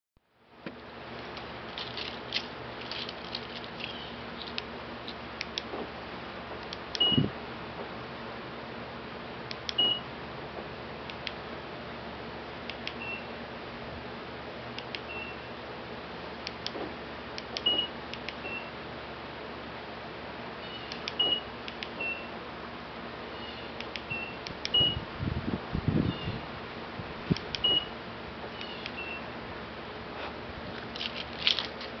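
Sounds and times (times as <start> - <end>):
car lock confirmation beeps: 7.0 - 7.3, 9.8 - 10.0, 17.6 - 17.9, 21.2 - 22.3, 24.1 - 25.0, 27.6 - 27.9.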